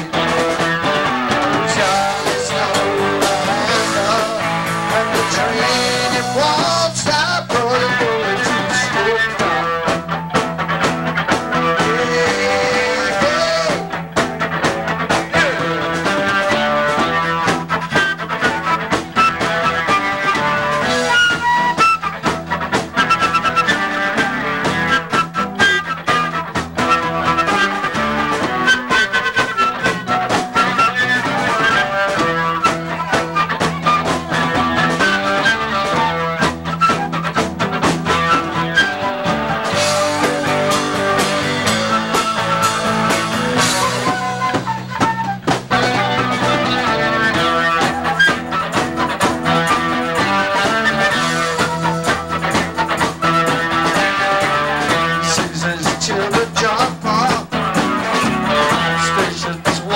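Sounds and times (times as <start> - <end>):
bass guitar: 0.0 - 59.9
drums: 0.0 - 59.9
electric guitar: 0.0 - 59.9
flute lead: 0.1 - 59.9.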